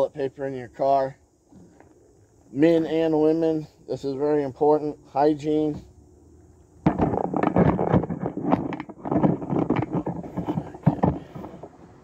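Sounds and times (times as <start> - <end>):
handling rustling and knocking: 6.8 - 11.8.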